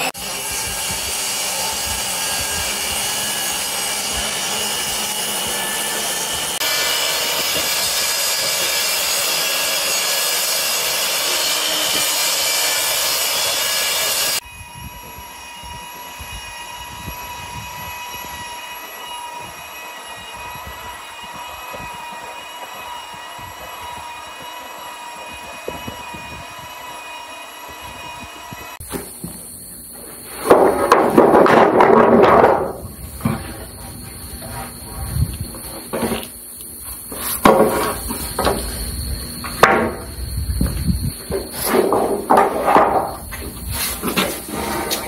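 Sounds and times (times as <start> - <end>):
table saw blade whining: 0.0 - 45.0.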